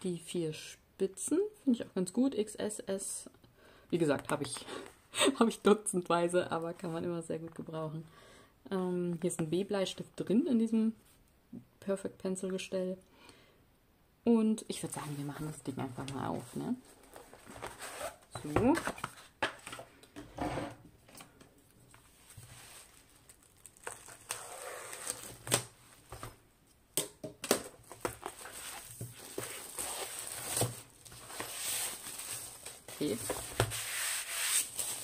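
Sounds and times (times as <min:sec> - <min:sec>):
plastic shrink-wrap crinkling: 0:22.6 - 0:25.8, 0:27.8 - 0:33.5.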